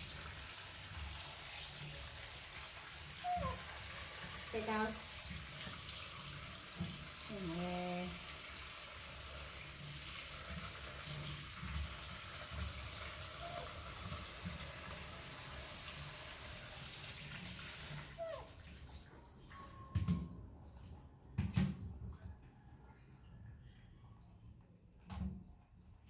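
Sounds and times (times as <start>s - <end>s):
tap water running into sink: 0.0s - 20.3s.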